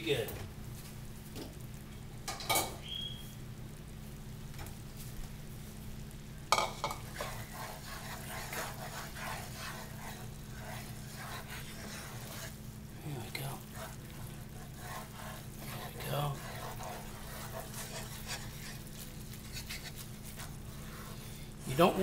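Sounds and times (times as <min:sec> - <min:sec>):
sauce bubbling and sizzling: 0:00.5 - 0:22.0
wooden spoon scraping pan: 0:06.6 - 0:21.9.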